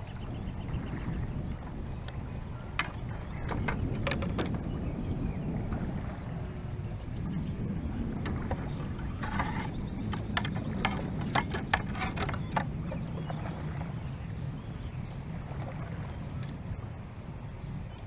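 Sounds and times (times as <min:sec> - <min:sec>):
low steady rumble: 0:00.0 - 0:18.0
fishing tackle clicks and knocks: 0:02.8 - 0:04.6, 0:09.2 - 0:13.0.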